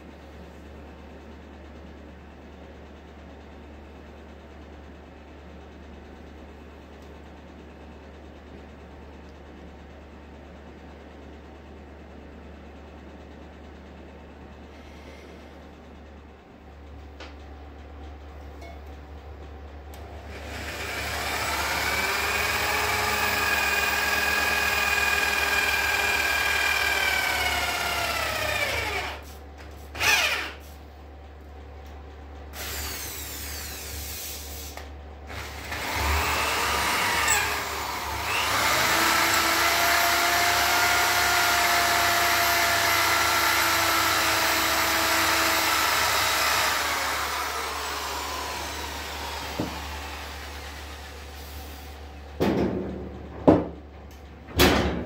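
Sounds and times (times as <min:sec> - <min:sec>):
electric drill running: 0:20.2 - 0:29.3, 0:30.0 - 0:30.7, 0:32.5 - 0:51.5.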